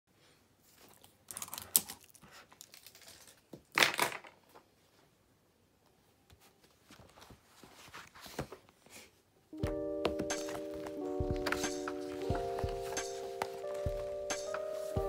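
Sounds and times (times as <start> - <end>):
paper rustling: 6.4 - 9.1.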